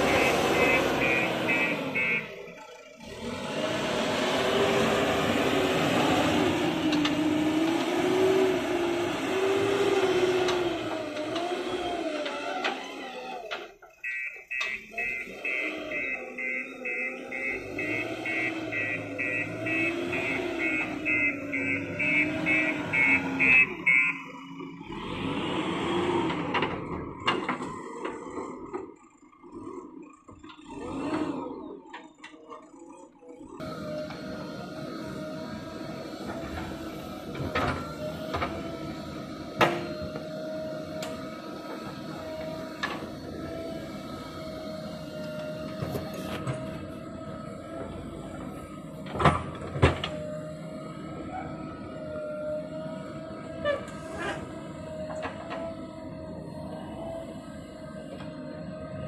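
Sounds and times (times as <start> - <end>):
reversing alarm beeping: 0.0 - 2.8, 14.0 - 25.1
diesel engine revving: 0.0 - 59.0.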